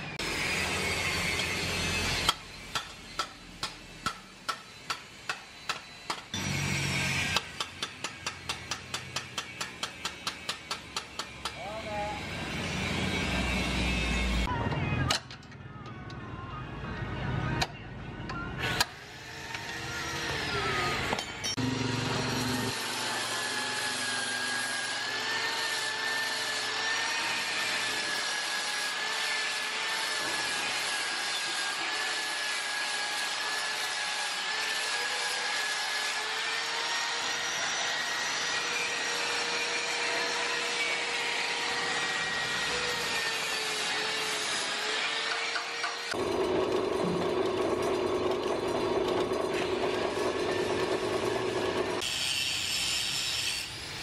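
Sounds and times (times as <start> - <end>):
whirring machine: 45.3 - 52.2.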